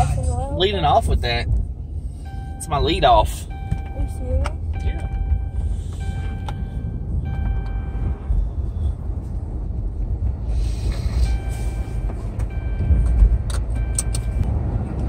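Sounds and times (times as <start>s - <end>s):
car rumble inside cabin: 0.0s - 15.0s
faint high steady tones: 0.8s - 8.6s, 11.2s - 13.1s.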